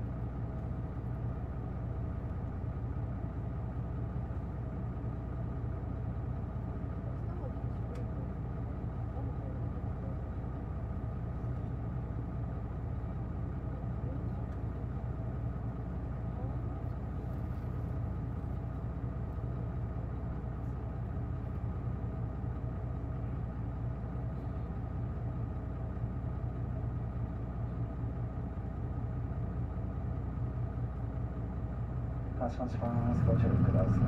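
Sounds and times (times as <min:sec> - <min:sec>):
bus diesel engine running: 0:00.0 - 0:34.0.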